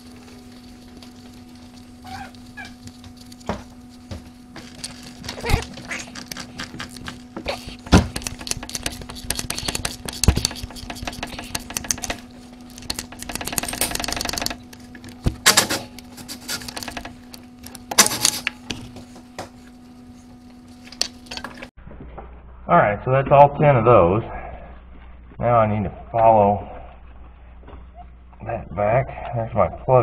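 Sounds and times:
low hum: 0.0 - 30.0
hand ratchet clicking: 8.1 - 14.6.

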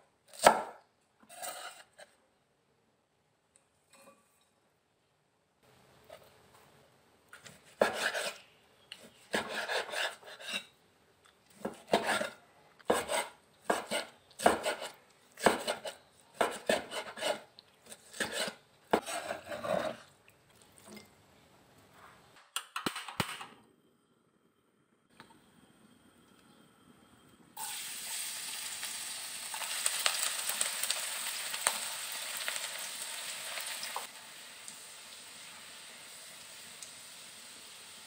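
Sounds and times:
cleaver chopping on cutting board: 12.9 - 17.4.

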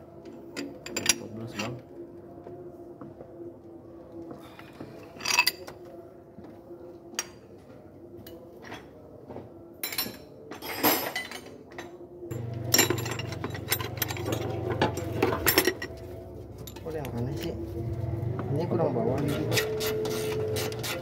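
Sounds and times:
hand tools knocking on metal: 12.3 - 16.0.

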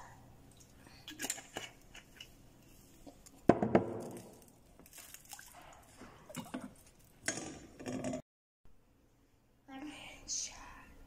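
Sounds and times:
faint wet sounds: 4.2 - 7.2.

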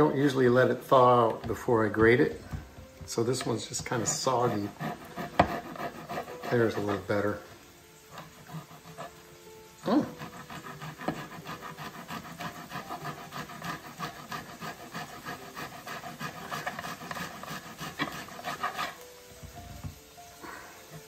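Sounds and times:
ginger grated on hand grater: 3.2 - 7.5, 8.1 - 9.3, 9.9 - 19.0.

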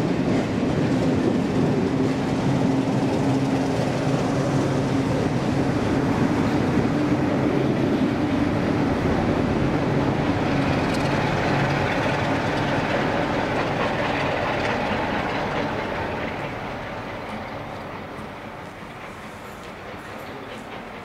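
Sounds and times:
coach wheels clattering on rails: 0.0 - 21.0
steam locomotive exhaust: 0.0 - 21.0.

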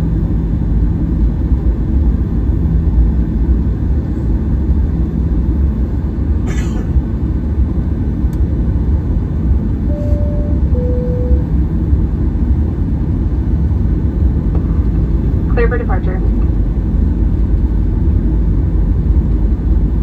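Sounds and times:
aircraft cabin engine rumble: 0.0 - 20.0
two-tone cabin chime: 9.8 - 11.6.

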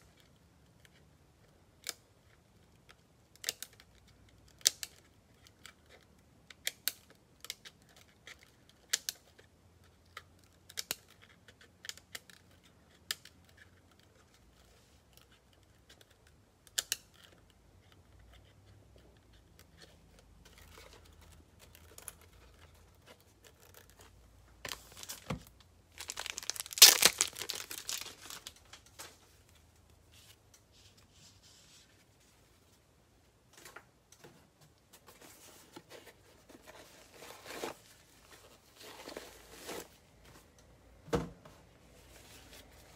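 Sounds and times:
packaging crinkling and tearing: 20.5 - 29.1.

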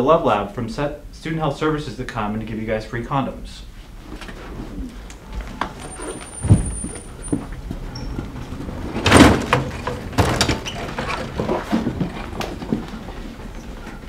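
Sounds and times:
door opening: 4.1 - 14.0
cart rattling and knocking: 5.2 - 14.0
heavy thump: 5.4 - 7.8.

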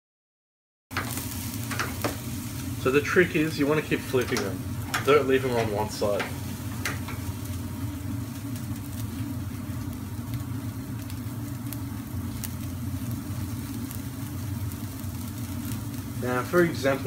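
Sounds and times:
kebabs sizzling on grill: 0.9 - 17.0
crackling pops: 8.4 - 17.0.

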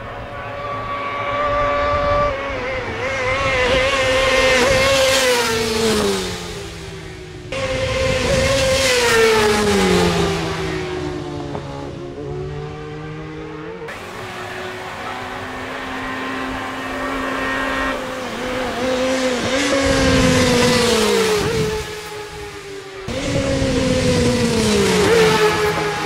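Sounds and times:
racing motorcycles passing: 0.0 - 26.0.

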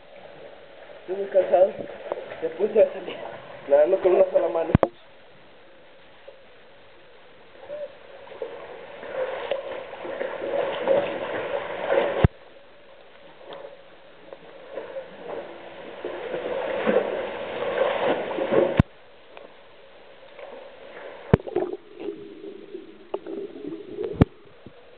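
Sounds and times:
water splashing from swimming: 7.6 - 24.9.

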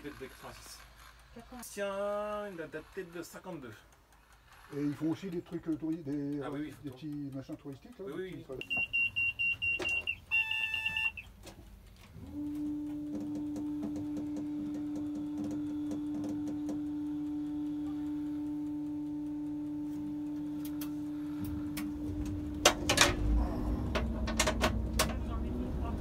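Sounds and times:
faint ticking: 0.2 - 26.0
sharp clicks and knocks: 2.7 - 12.4, 20.6 - 25.5
high warning beeper: 8.6 - 11.3
steady electric hum: 8.6 - 26.0.

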